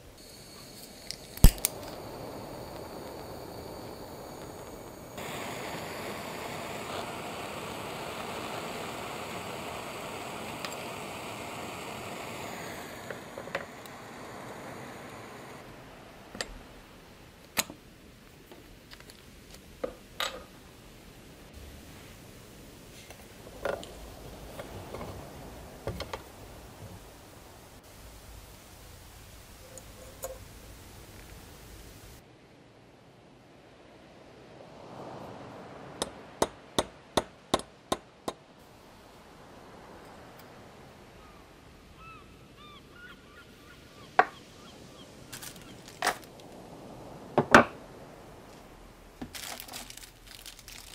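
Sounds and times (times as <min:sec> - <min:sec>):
gas torch hissing: 0:00.0 - 0:16.8.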